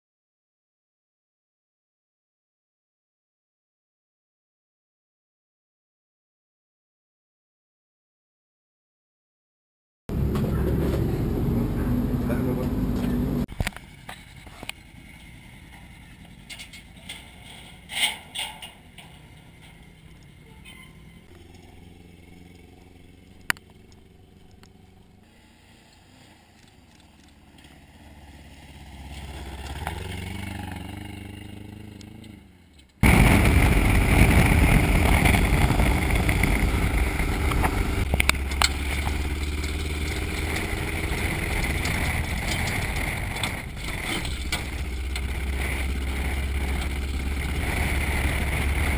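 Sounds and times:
road noise: 0:10.1 - 0:48.9
truck engine running: 0:10.1 - 0:48.9.

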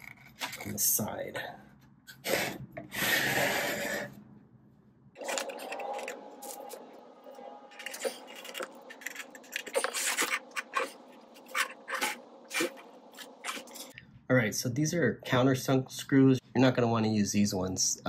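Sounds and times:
loud rubbing scrape: 0:02.2 - 0:04.2.

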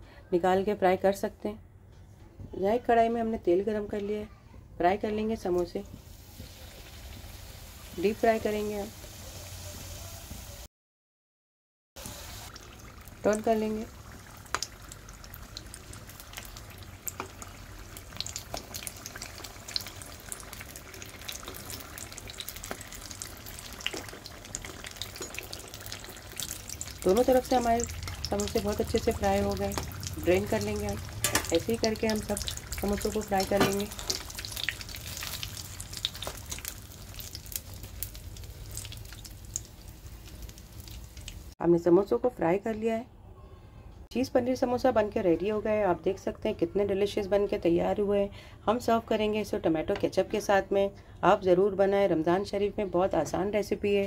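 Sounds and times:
food deep-frying in oil: 0:05.5 - 0:10.7, 0:12.0 - 0:41.6.

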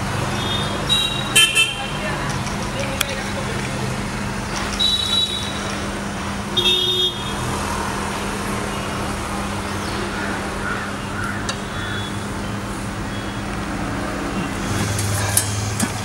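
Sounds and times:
street traffic: 0:00.0 - 0:16.0
vehicle horn toots: 0:00.3 - 0:02.0, 0:04.8 - 0:05.7, 0:06.5 - 0:07.4.

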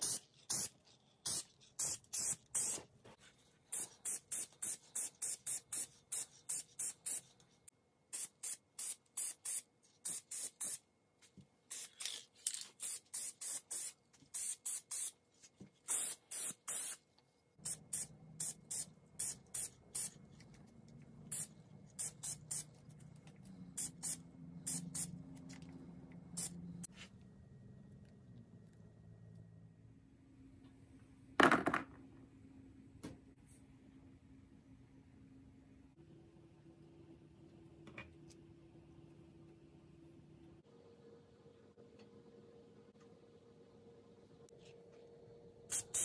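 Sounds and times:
spray paint can hissing: 0:00.0 - 0:02.8, 0:03.7 - 0:07.3, 0:08.1 - 0:10.8, 0:11.7 - 0:15.2, 0:15.9 - 0:17.0, 0:17.6 - 0:20.2, 0:21.3 - 0:22.7, 0:23.7 - 0:25.1, 0:45.7 - 0:46.0.

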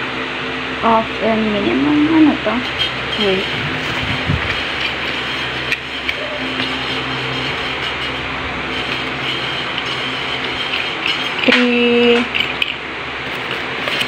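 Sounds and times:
steady rushing noise: 0:02.4 - 0:11.5.

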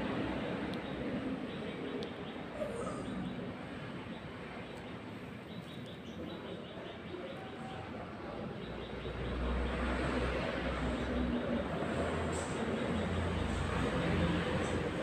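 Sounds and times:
steady background noise: 0:00.0 - 0:15.0.

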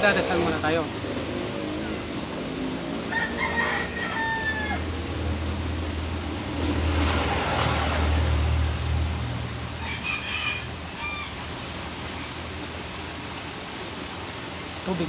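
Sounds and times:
rooster crowing: 0:03.0 - 0:05.2, 0:09.8 - 0:11.5.

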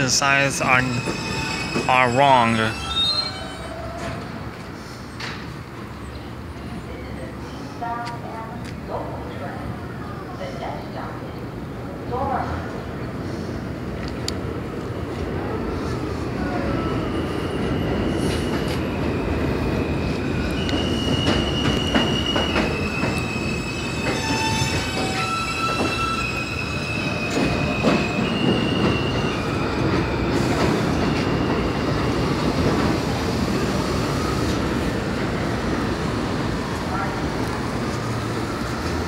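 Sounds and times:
subway train rumble: 0:00.0 - 0:39.0
train wheels squealing: 0:00.4 - 0:05.0, 0:16.4 - 0:32.6.

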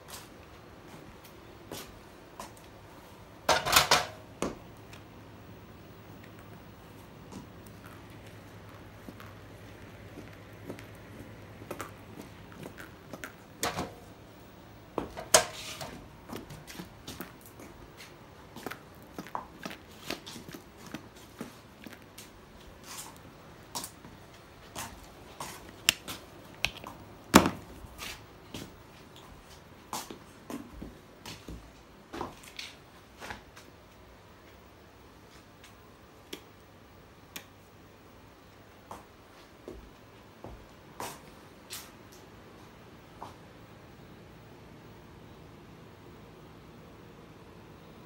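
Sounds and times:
footsteps on concrete floor: 0:07.0 - 0:13.4, 0:15.8 - 0:33.7, 0:38.9 - 0:41.9.

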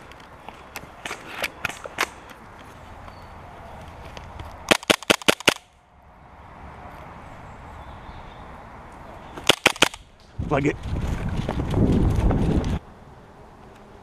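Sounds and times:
airsoft gun shots: 0:04.7 - 0:05.7, 0:09.4 - 0:10.1.

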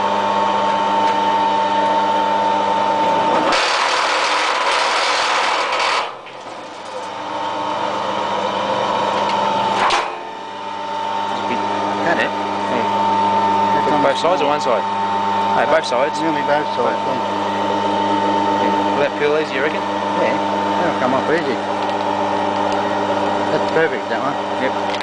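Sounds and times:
wire stripping machine motor hum: 0:00.0 - 0:25.0.

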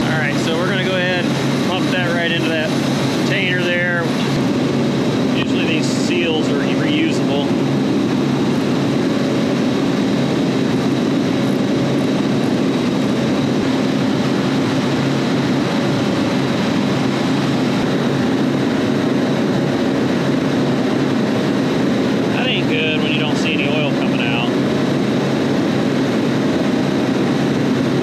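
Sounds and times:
low hum: 0:00.0 - 0:28.0
refrigeration machinery drone: 0:00.0 - 0:28.0.

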